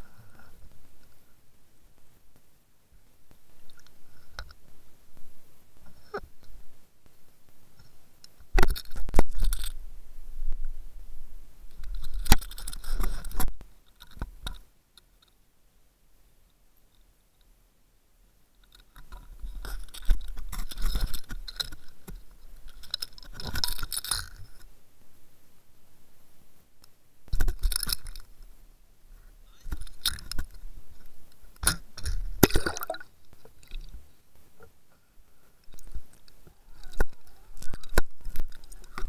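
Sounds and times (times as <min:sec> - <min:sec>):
splashing into water: 0:32.4 - 0:33.1.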